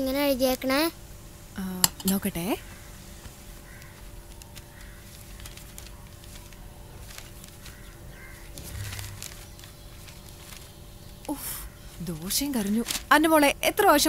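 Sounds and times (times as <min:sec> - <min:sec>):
steady low hum: 0:00.0 - 0:14.0
crows cawing faintly: 0:02.5 - 0:12.0.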